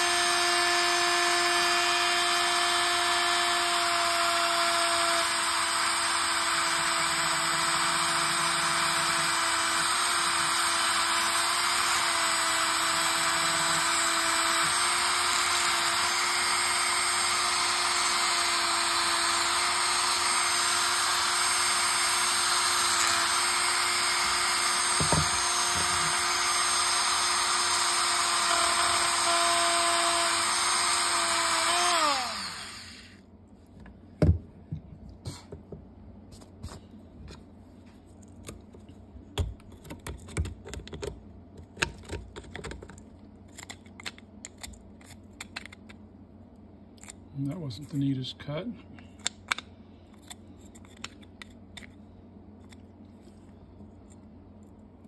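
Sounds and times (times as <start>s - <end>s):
rotary tool grinding plastic: 0.0s - 33.2s.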